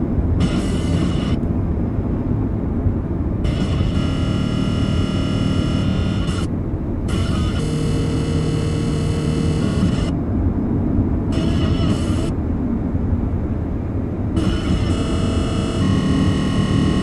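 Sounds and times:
buzzy whine: 0:00.0 - 0:01.5, 0:03.4 - 0:10.3, 0:11.2 - 0:12.4, 0:14.3 - 0:17.0
faint steady hum tone: 0:00.0 - 0:17.0
radio interference hiss: 0:00.4 - 0:01.4, 0:03.4 - 0:06.5, 0:07.1 - 0:10.2, 0:11.3 - 0:12.4, 0:14.4 - 0:17.0.

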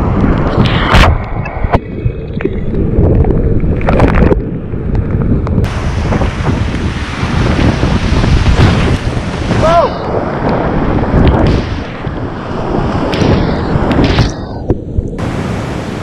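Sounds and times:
wind buffeting microphone: 0:00.0 - 0:16.0
whitewater river roaring: 0:05.7 - 0:10.9
loud water splash: 0:05.7 - 0:14.4.

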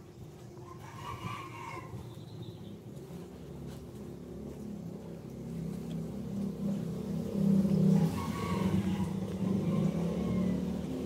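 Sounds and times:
distant vehicle engine running: 0:02.3 - 0:11.0.

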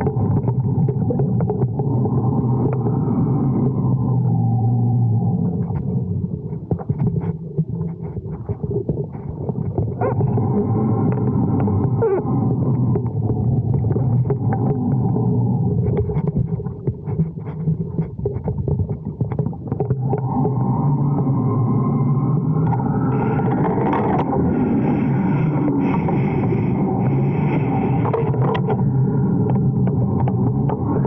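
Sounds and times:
wind noise drone: 0:20.0 - 0:31.0.

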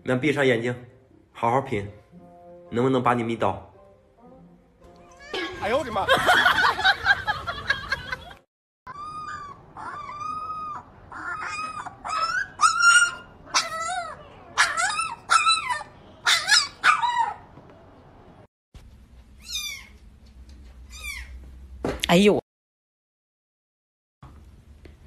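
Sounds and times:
puppies whimpering and yipping: 0:08.9 - 0:17.4.

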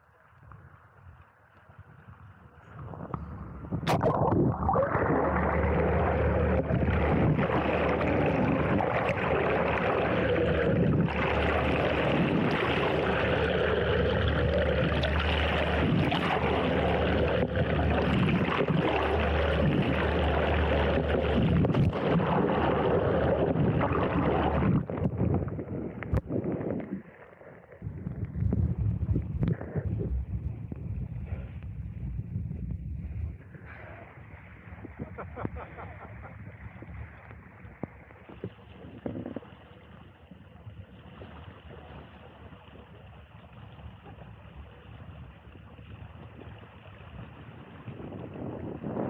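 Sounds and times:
wind: 0:00.0 - 0:49.0
boat motor low hum: 0:00.1 - 0:49.0
underwater rush of water: 0:01.9 - 0:49.0
water splashing: 0:03.2 - 0:30.8, 0:33.4 - 0:49.0.

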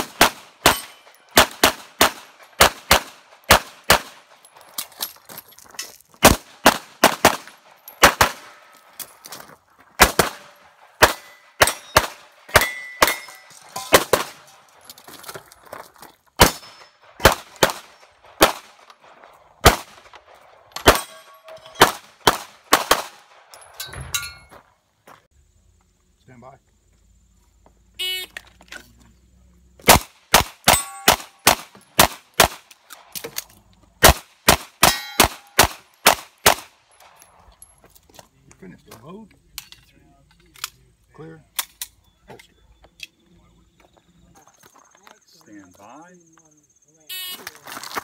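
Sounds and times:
handgun shots: 0:00.0 - 0:04.2, 0:10.0 - 0:14.5, 0:29.8 - 0:33.4, 0:34.0 - 0:36.7
bullets ringing on steel targets: 0:00.6 - 0:01.4, 0:10.4 - 0:14.6, 0:20.8 - 0:22.0, 0:23.5 - 0:24.5, 0:30.7 - 0:31.5, 0:34.8 - 0:35.6.

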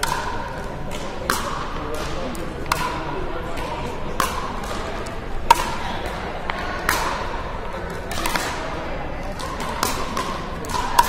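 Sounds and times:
paddles striking plastic ball: 0:09.4 - 0:11.0.

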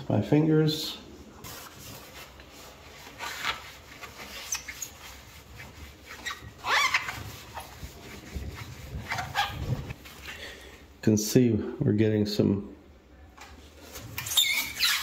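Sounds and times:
paper towel rubbing: 0:01.4 - 0:10.4.

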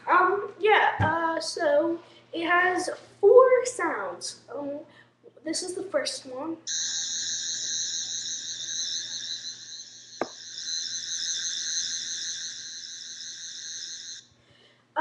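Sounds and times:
toy electronic whine with warble: 0:06.7 - 0:14.2.

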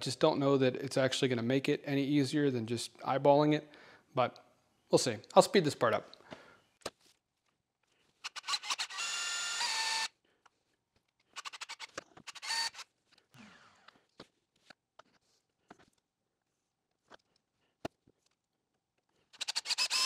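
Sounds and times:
power drill motor whine: 0:08.2 - 0:10.1, 0:11.4 - 0:14.0, 0:19.4 - 0:20.0.

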